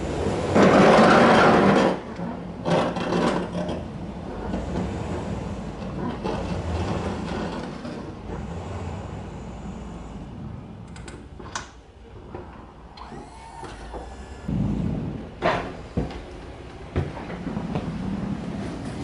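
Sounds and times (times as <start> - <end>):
pickup truck engine and tyres: 0.0 - 19.0
loud low rumble: 13.8 - 18.5.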